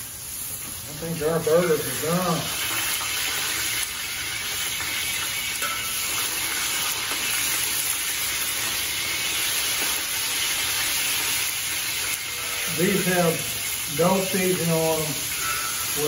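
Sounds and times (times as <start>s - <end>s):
burger patties sizzling in oil: 0.0s - 16.0s
metal spatula scraping pan: 15.3s - 16.0s.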